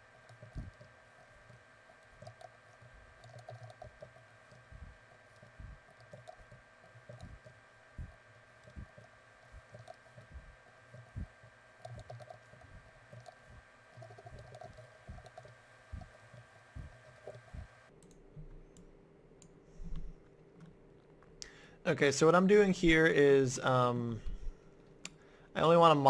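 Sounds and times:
steady low hum: 0.0 - 26.0
keyboard and mouse clicking: 0.1 - 18.2.

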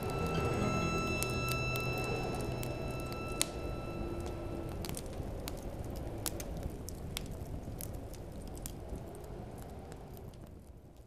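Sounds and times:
low rumbling noise: 0.0 - 7.0
sharp crackles and clicks: 0.0 - 11.0.

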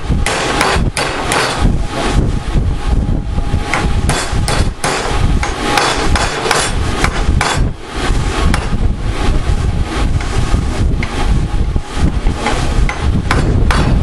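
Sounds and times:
steady low rumble: 0.0 - 14.0
hammer striking steel bar: 0.2 - 1.6, 3.7 - 7.7, 12.9 - 14.0.

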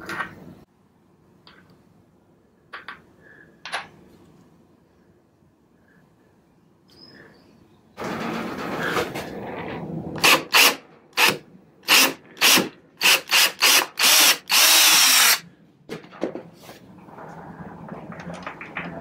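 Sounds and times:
power drill driving screw into wood: 10.2 - 15.4.

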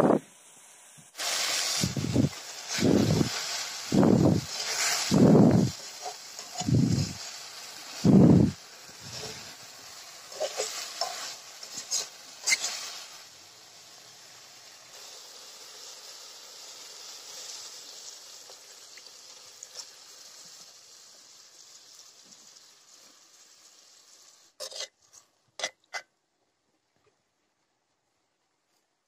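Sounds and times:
gravy sizzling: 0.0 - 26.1
spatula scraping a metal wok: 2.7 - 8.0, 8.8 - 13.2, 24.6 - 26.0.

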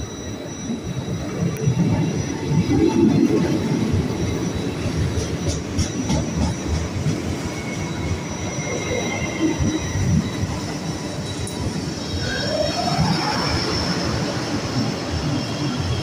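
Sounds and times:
train wheels rumbling on rails: 0.0 - 16.0.

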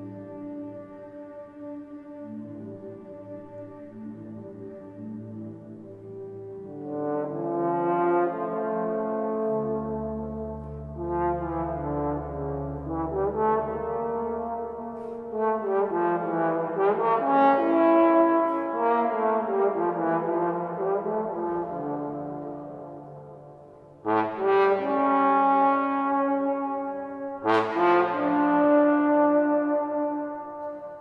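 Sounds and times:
trombone notes: 24.0 - 31.0.

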